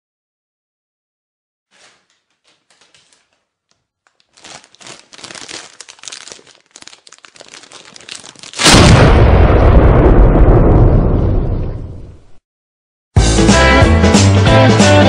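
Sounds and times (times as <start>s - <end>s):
crinkling and crackling: 1.7s - 8.8s.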